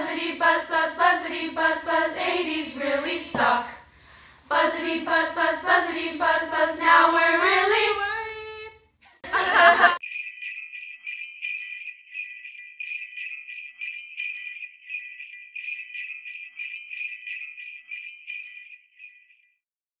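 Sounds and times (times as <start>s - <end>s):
jingle bells shaken: 10.0s - 19.6s.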